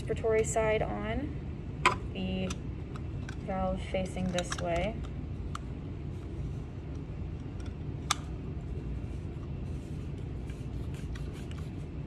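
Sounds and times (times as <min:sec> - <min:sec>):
low room hum: 0:00.0 - 0:12.0
valve parts clicking: 0:01.8 - 0:05.7.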